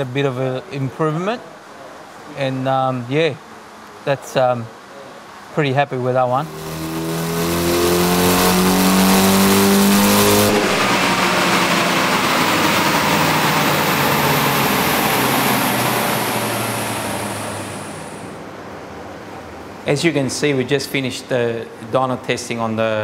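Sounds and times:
turbocharged engine revving: 6.1s - 18.4s
rushing noise with falling whine: 6.2s - 18.4s.

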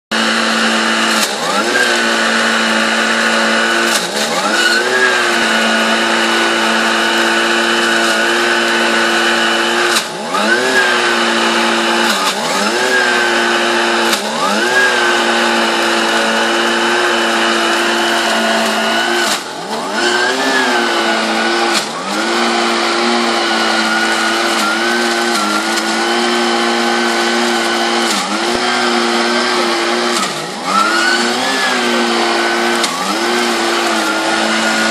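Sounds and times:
petrol blower engine revving: 0.1s - 34.9s.

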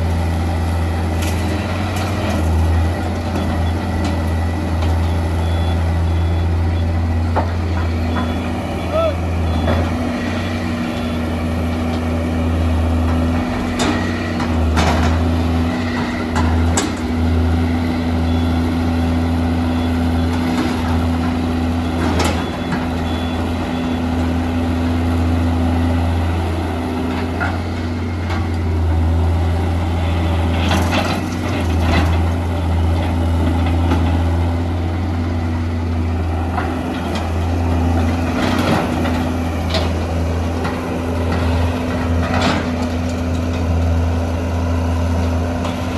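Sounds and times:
excavator diesel engine droning: 0.0s - 45.9s.

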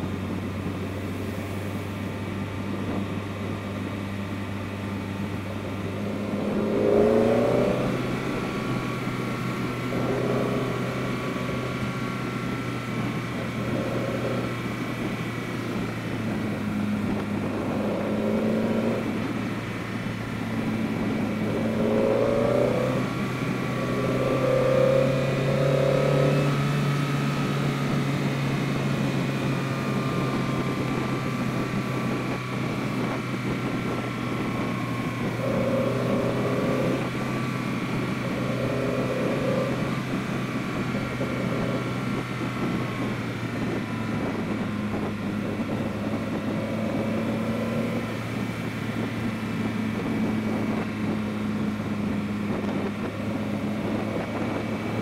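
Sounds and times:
car engine revving: 0.0s - 55.0s
road noise: 0.0s - 55.0s.

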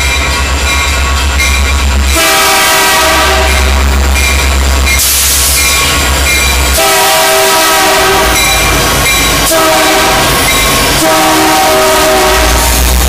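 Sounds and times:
rumble of passing train: 0.0s - 13.0s
locomotive air horn blasts: 2.1s - 3.9s, 6.7s - 8.6s, 9.5s - 10.3s, 11.0s - 12.9s.

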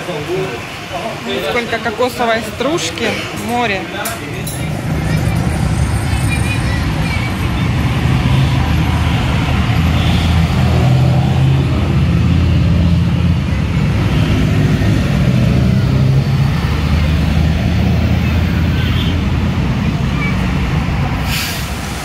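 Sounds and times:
road traffic rumble: 0.0s - 22.0s
large vehicle engine running: 4.6s - 22.0s.

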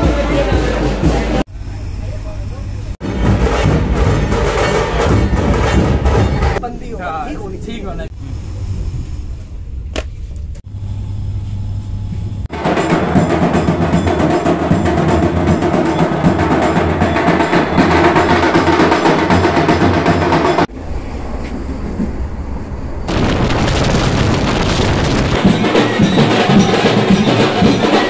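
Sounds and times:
loud fast drumming: 12.5s - 20.7s, 23.1s - 28.0s.

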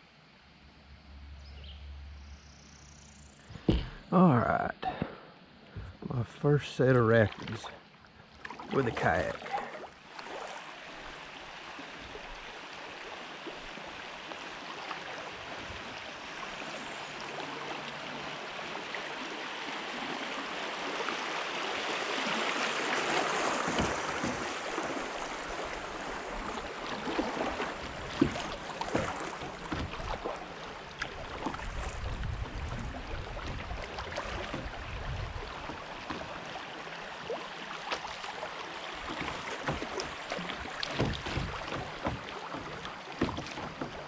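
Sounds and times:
sudden knocks on kayak: 3.5s - 4.0s, 23.5s - 24.6s, 28.1s - 30.2s, 39.2s - 44.0s.

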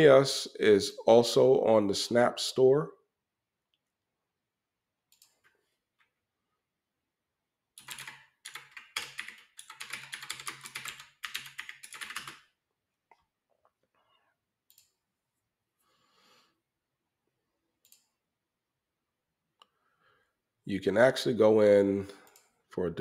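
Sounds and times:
rapid keyboard typing: 7.8s - 12.6s.

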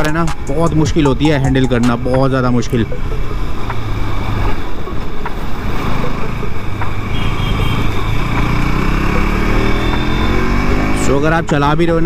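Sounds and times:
motorcycle engine accelerating: 2.8s - 11.6s.

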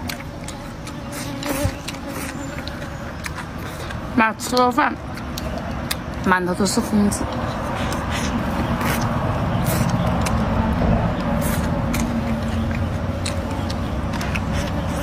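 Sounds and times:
wet mouth clicks: 7.3s - 10.5s
person slurping and chewing greens: 7.3s - 15.0s.

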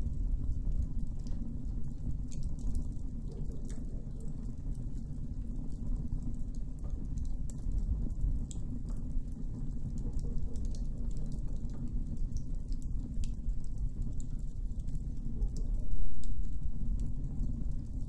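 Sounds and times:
campfire crackling: 10.6s - 18.0s.

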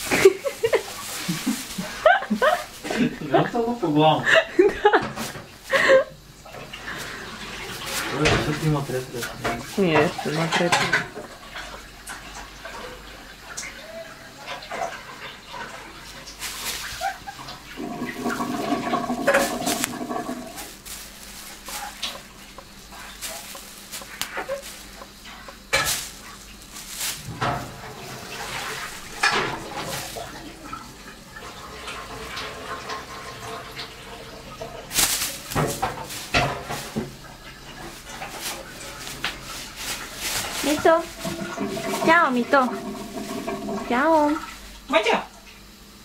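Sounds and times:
plastic bag rustling: 0.0s - 3.8s, 5.0s - 11.0s, 16.4s - 31.0s, 34.8s - 44.9s.

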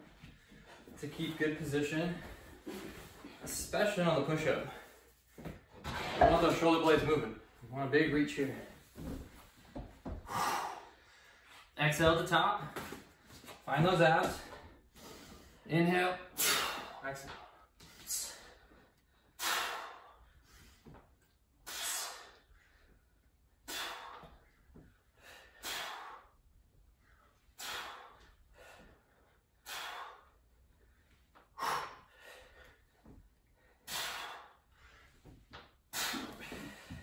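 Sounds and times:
heavy breathing: 0.1s - 5.4s, 10.0s - 11.8s, 27.0s - 37.0s.

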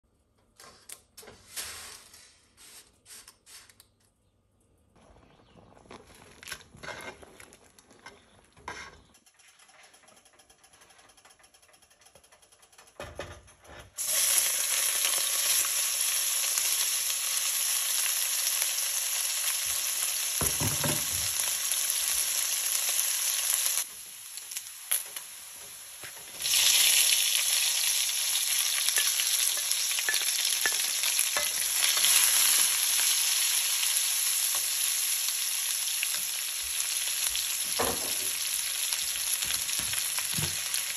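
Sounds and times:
sausage sizzling in hot oil: 14.0s - 40.9s.

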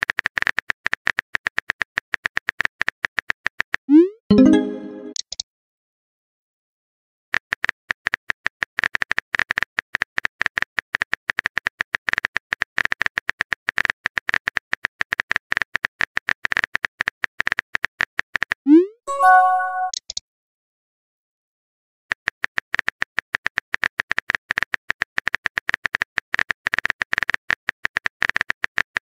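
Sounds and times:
message sent chime: 4.3s - 5.2s, 19.1s - 20.0s.

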